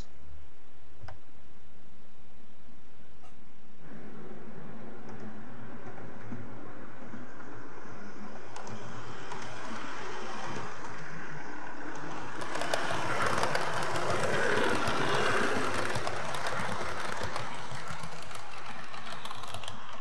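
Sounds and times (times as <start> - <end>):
model train motor hum: 7.4 - 20.0
wheels clicking over rail joints: 8.5 - 20.0.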